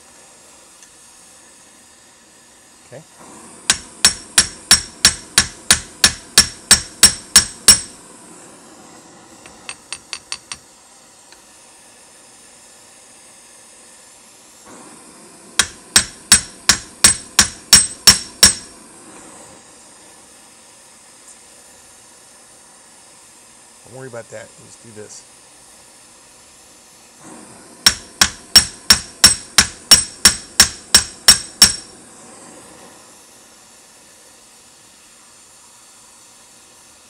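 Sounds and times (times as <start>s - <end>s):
gas torch hissing: 0.0s - 37.0s
hammer blows on hot rivets: 3.6s - 8.0s, 9.5s - 10.7s, 15.6s - 18.7s, 27.8s - 31.9s.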